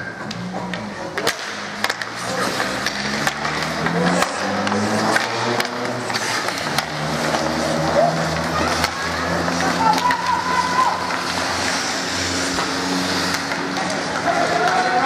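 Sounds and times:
hockey sticks clacking: 0:00.0 - 0:15.0
skate blades scraping ice: 0:00.1 - 0:15.0
voices calling out: 0:07.2 - 0:15.0.

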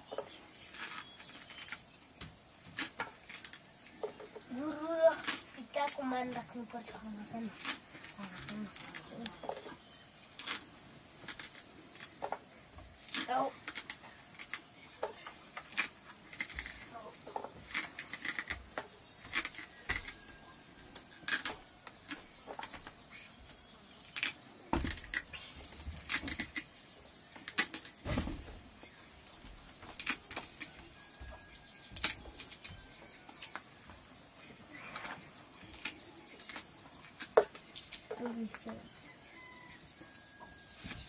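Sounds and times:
dull thumps: 0:28.0 - 0:28.6.

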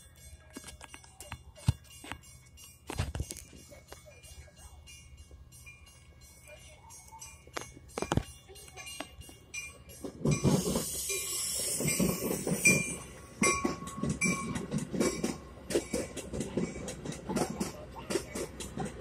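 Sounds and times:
wheel clicks over rail joints: 0:07.0 - 0:19.0
train rushing hiss: 0:10.1 - 0:19.0.

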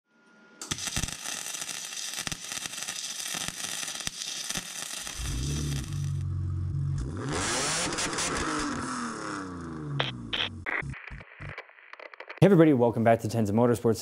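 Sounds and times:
welder crackling and popping: 0:00.6 - 0:06.3, 0:07.0 - 0:12.6
low drone: 0:05.1 - 0:11.5.

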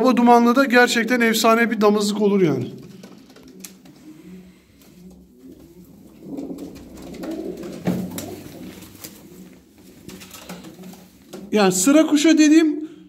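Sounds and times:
pigeons cooing: 0:02.8 - 0:11.6.

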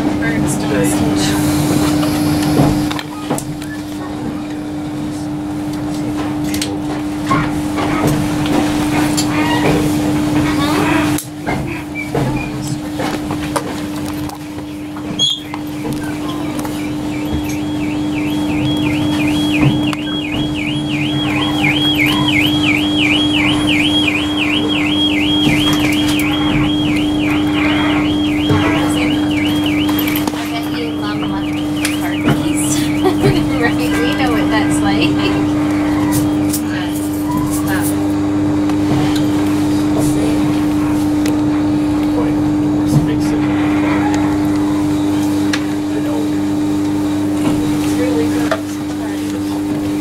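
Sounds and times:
steady electrical hum: 0:00.0 - 0:50.0
train rumble: 0:00.0 - 0:50.0
warbling electronic warning tone: 0:14.4 - 0:37.9.

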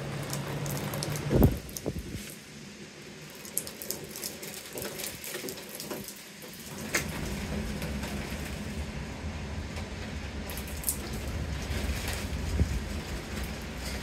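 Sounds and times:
rain drops ticking on window glass: 0:00.0 - 0:14.0
low rumble: 0:06.7 - 0:14.0.

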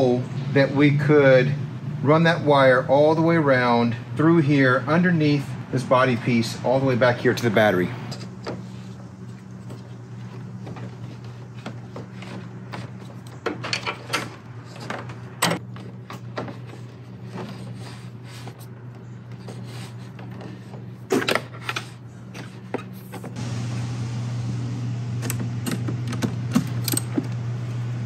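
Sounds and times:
steady low hum: 0:00.0 - 0:28.0
cables rubbing and knocking: 0:08.1 - 0:23.4.

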